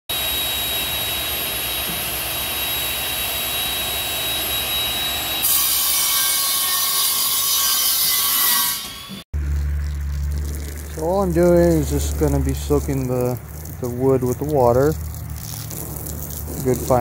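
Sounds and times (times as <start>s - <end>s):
circular saw cutting plywood: 4.7s - 9.2s.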